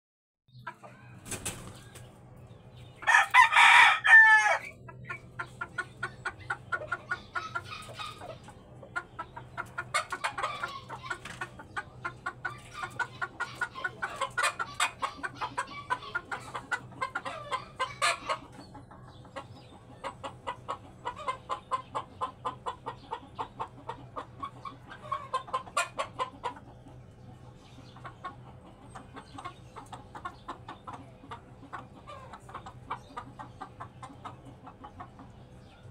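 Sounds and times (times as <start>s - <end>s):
rooster crowing: 3.0s - 4.8s
rapid clucking: 4.7s - 35.9s.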